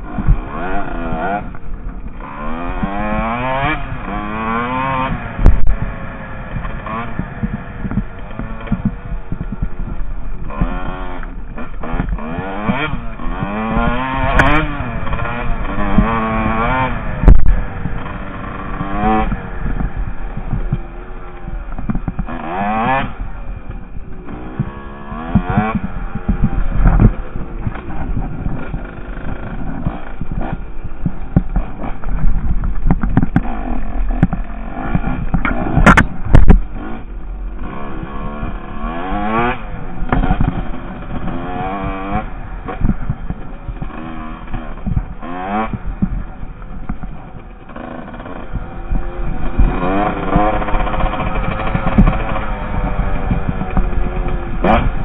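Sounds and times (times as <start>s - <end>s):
dirt bike engine revving: 0.0s - 55.0s
clatter and knocks from bumps: 25.3s - 36.9s, 49.6s - 55.0s.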